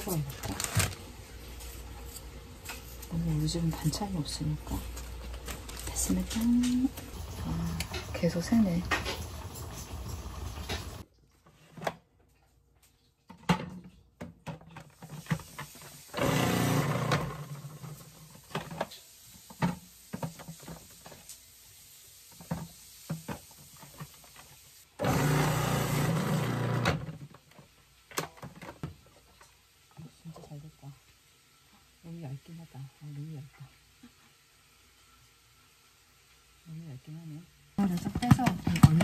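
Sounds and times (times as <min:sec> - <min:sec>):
utensils clicking and knocking: 0:05.6 - 0:11.0.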